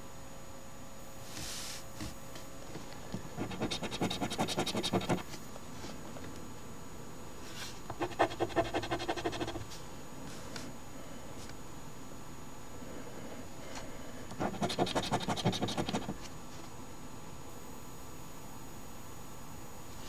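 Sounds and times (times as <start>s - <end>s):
scratching lottery ticket: 3.4s - 5.2s, 7.9s - 9.7s, 14.4s - 16.2s.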